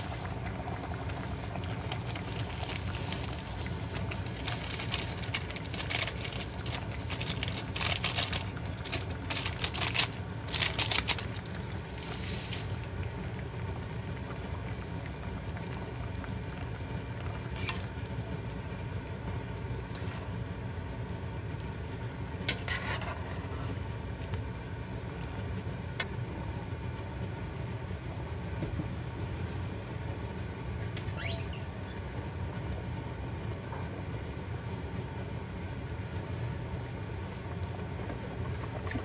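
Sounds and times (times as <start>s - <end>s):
food sizzling and scraping: 10.6s - 12.9s, 22.5s - 23.8s.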